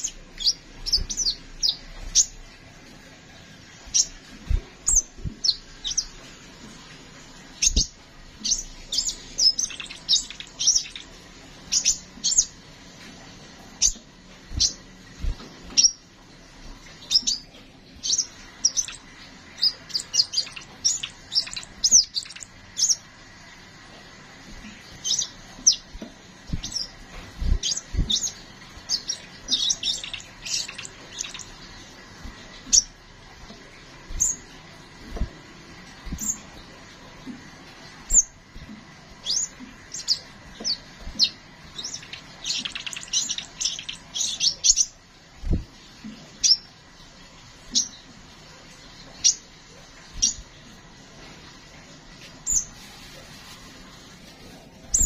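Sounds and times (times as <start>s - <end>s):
bird chirping: 0.0s - 2.6s, 3.3s - 6.8s, 7.5s - 12.6s, 13.6s - 16.1s, 16.8s - 23.2s, 24.6s - 33.0s, 33.6s - 36.6s, 39.1s - 45.6s, 46.4s - 46.7s, 50.2s - 50.5s.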